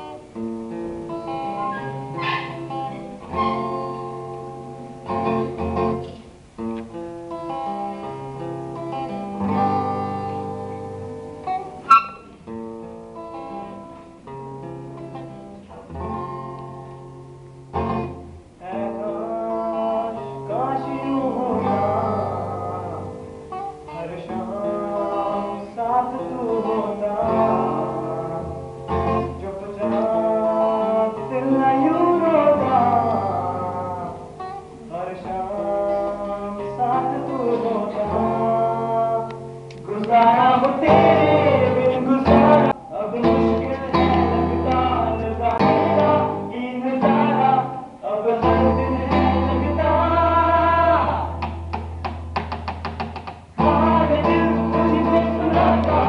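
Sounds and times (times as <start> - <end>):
acoustic guitar picking: 0.0 - 56.0
person singing: 18.6 - 51.5, 53.6 - 56.0.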